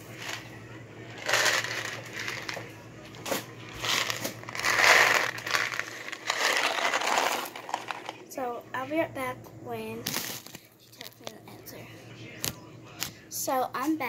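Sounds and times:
plastic and cardboard crinkling: 0:01.2 - 0:08.2.

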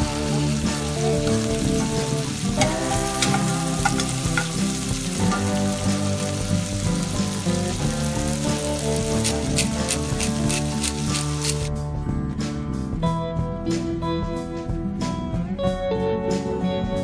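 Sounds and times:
fish fillets sizzling in a skillet: 0:00.0 - 0:11.7
sharp crackles: 0:08.3 - 0:11.7.

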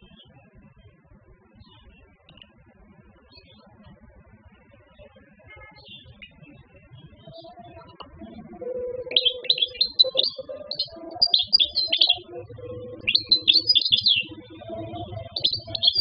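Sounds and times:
low sustained background music: 0:07.0 - 0:16.0
goldfinch singing: 0:09.0 - 0:16.0.

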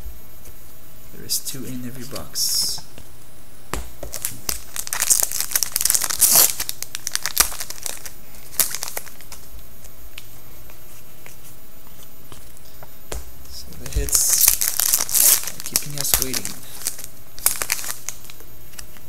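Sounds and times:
wrapper crinkling and tearing: 0:04.1 - 0:09.5, 0:14.0 - 0:19.0
cards being handled: 0:13.8 - 0:19.0.

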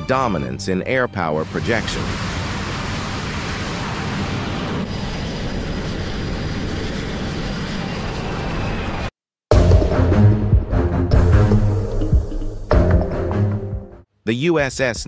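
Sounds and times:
jet engine noise: 0:01.4 - 0:09.2
wind: 0:01.9 - 0:09.2.

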